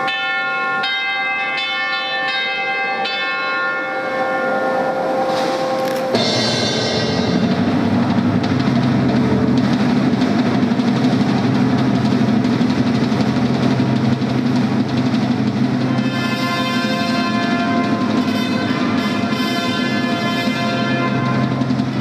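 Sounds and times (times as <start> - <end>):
low processional music: 0.0 - 22.0
bright trumpet notes: 15.9 - 21.6.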